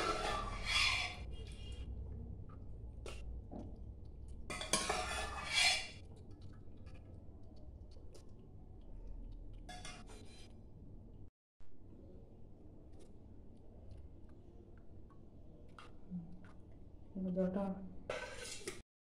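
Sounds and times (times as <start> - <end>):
steel kitchenware clinking: 0.0 - 1.1, 4.5 - 6.0.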